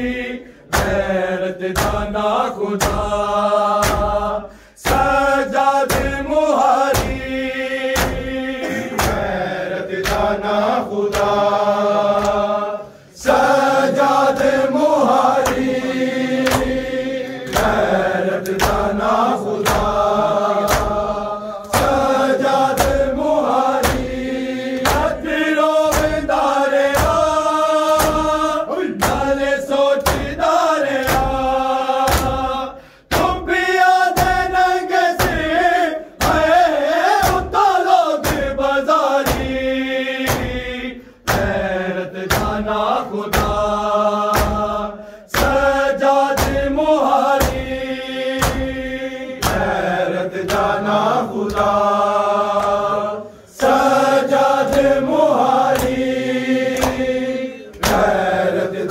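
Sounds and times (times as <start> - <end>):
men chanting in unison: 0.0 - 58.9
rhythmic hand chest-beating: 0.0 - 58.9.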